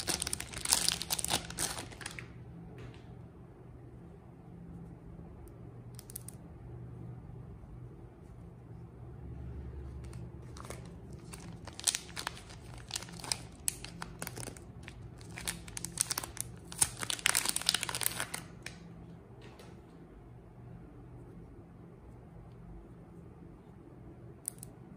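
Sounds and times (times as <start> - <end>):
plastic wrapper crackling and tearing: 0.0 - 2.4, 10.0 - 18.8.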